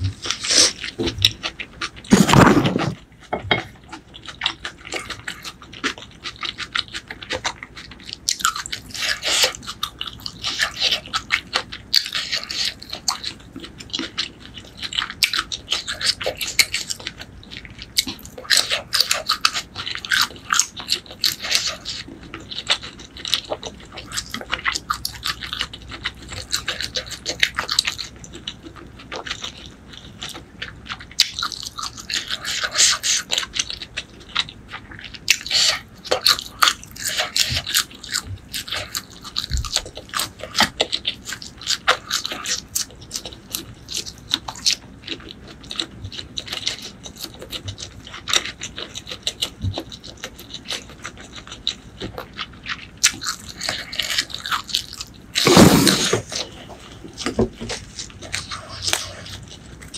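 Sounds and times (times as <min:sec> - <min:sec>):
wet chewing: 0:00.0 - 0:59.9.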